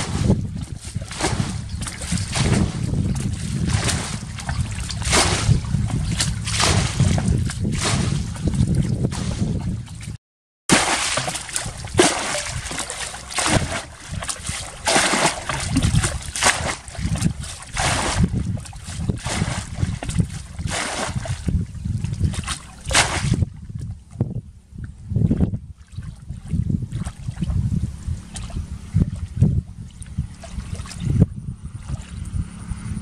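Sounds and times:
bucket scooping splashes: 0.0 - 23.9, 28.2 - 31.1
water pouring from bucket: 10.7 - 21.4.

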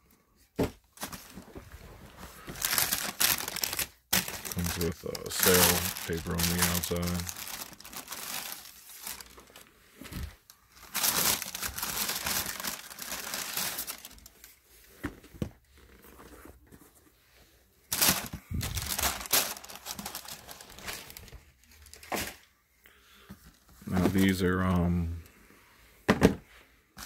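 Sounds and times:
tissue paper rustling: 1.0 - 14.7, 17.9 - 22.1.

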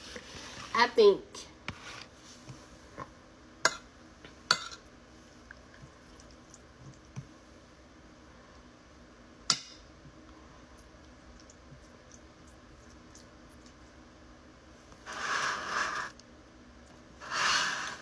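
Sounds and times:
spoon scraping ceramic plate: 15.1 - 16.2.

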